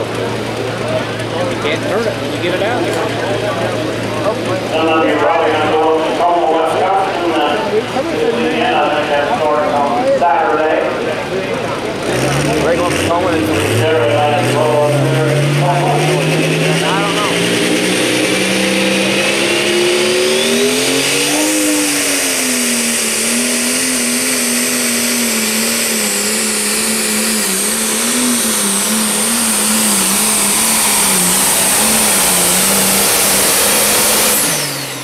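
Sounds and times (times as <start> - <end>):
diesel tractor engine at full throttle: 0.0 - 35.0.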